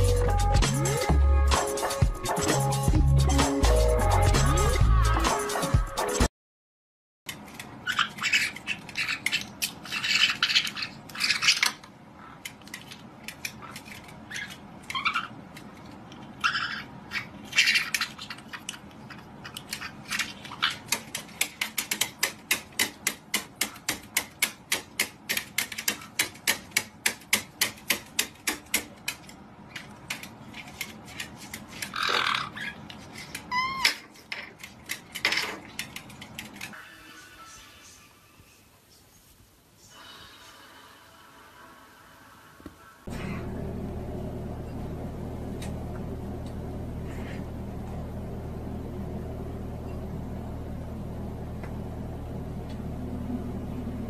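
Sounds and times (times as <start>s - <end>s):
parrots squawking and chattering: 7.7s - 12.8s, 13.4s - 21.3s, 31.0s - 34.6s.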